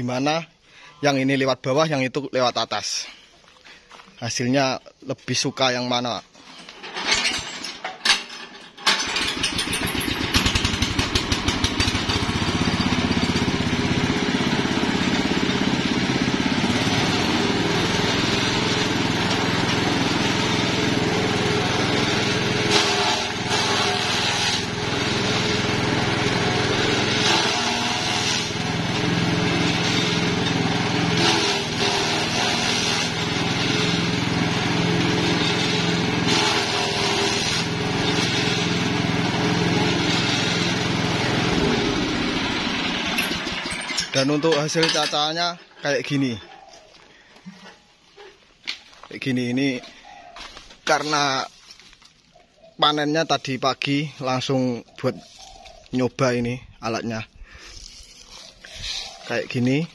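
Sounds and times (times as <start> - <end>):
small engine running: 9.0 - 43.9, 57.6 - 59.9
grass stalks shredded by blades: 22.7 - 24.7, 50.4 - 52.4, 55.2 - 56.0, 57.6 - 59.9.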